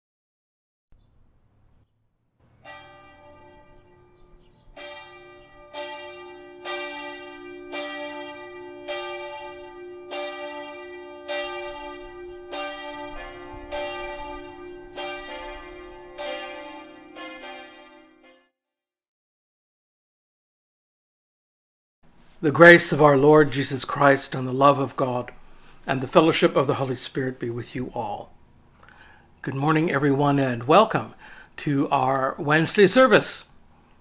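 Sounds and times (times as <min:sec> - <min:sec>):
church bells ringing: 0:02.4 - 0:18.5.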